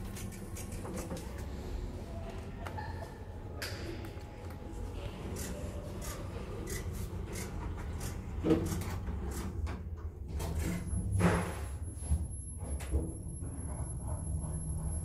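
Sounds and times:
rubbing and clicking noises: 0:00.0 - 0:01.5, 0:05.2 - 0:10.8.

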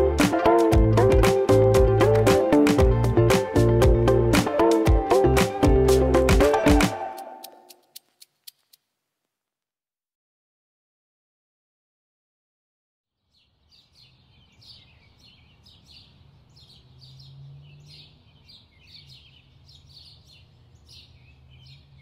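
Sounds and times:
small birds chirping: 0:13.2 - 0:22.0.

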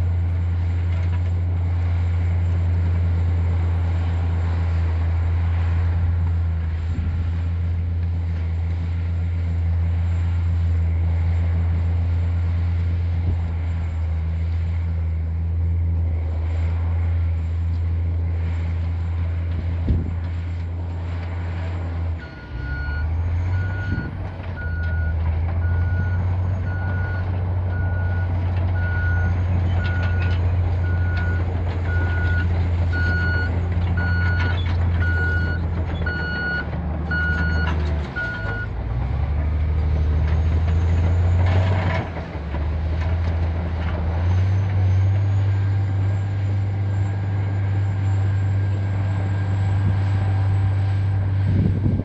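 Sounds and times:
bulldozer diesel engine running: 0:00.0 - 0:52.0
reversing alarm beeping: 0:22.2 - 0:38.7.

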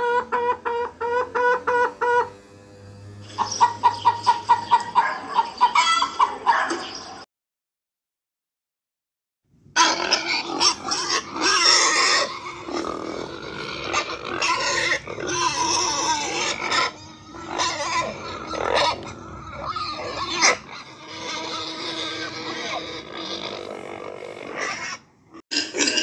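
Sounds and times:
pig grunting and squealing: 0:03.2 - 0:07.2, 0:09.8 - 0:26.0.

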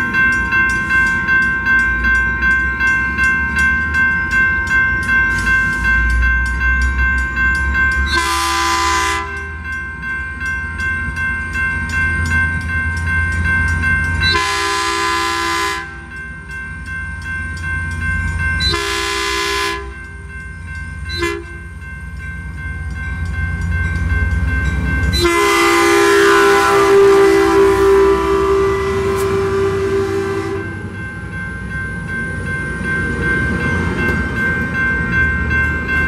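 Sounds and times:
train rumble: 0:00.0 - 0:36.0
train air horn blasts: 0:08.2 - 0:09.4, 0:14.3 - 0:16.0, 0:18.7 - 0:20.0, 0:21.1 - 0:21.6, 0:25.2 - 0:30.8.

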